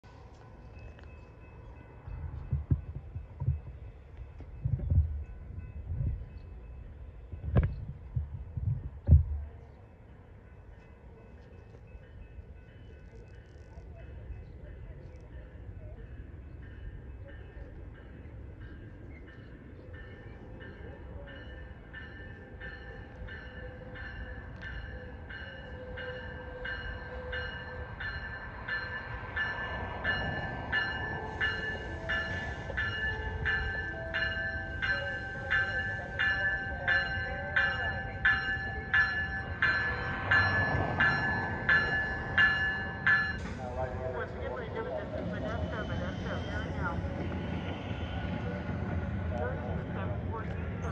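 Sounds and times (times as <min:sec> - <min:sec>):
train rumble: 0:00.0 - 0:50.9
train bell ringing: 0:00.3 - 0:07.6, 0:09.4 - 0:48.4
wind buffeting phone microphone: 0:02.0 - 0:06.5, 0:07.2 - 0:09.5.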